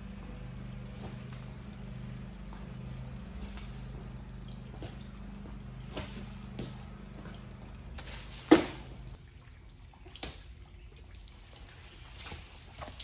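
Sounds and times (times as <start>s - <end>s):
low machine hum: 0.0s - 13.0s
water dripping on concrete: 10.0s - 13.0s.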